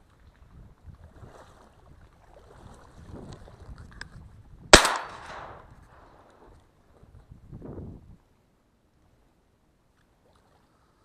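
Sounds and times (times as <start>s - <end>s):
shotgun shot: 4.8s - 5.7s.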